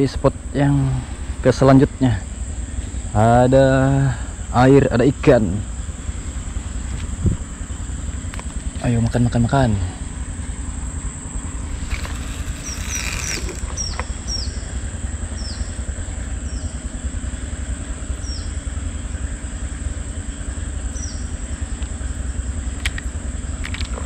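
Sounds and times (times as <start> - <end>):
low rumble: 0.0 - 16.5
high insect drone: 0.0 - 24.0
cloth rustling: 11.6 - 14.0
bird whistling descending notes: 11.8 - 14.6.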